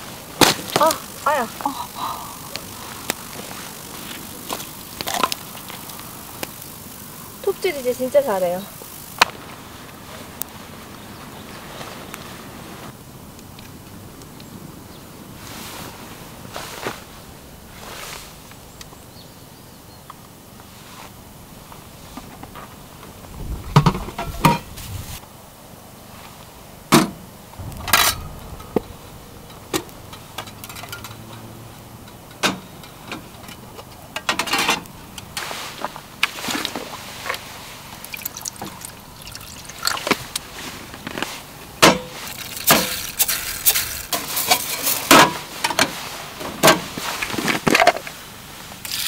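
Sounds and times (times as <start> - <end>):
water pouring into metal tin: 37.9 - 40.4, 42.2 - 45.0.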